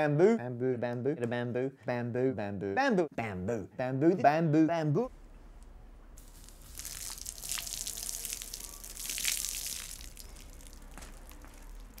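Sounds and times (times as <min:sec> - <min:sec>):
water splashing: 0:06.2 - 0:12.0.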